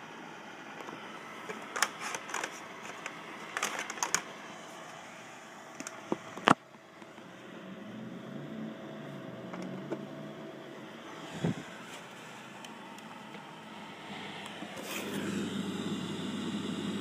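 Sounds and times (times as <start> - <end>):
projector handling clicks and knocks: 0.8 - 4.3.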